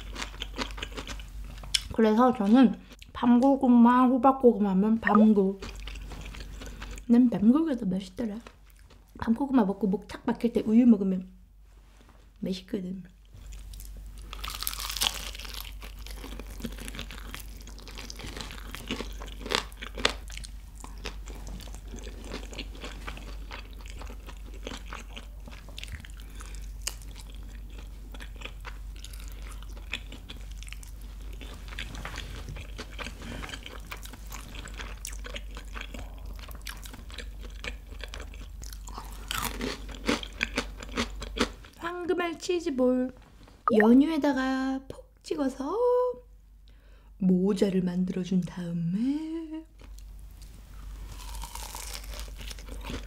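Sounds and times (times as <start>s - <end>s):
crunching and chewing fried chicken: 0.0s - 3.1s, 5.6s - 7.1s, 13.4s - 41.9s, 49.8s - 53.0s.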